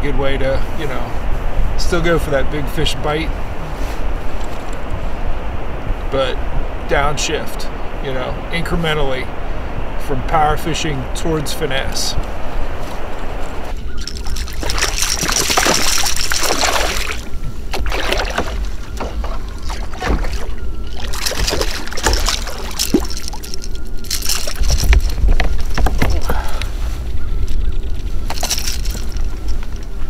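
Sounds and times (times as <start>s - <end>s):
water splashing and sloshing: 13.4s - 30.0s.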